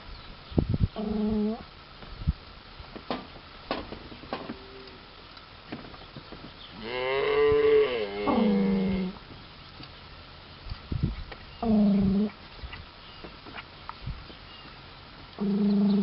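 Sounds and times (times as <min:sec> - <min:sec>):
cow mooing: 0:06.8 - 0:09.2.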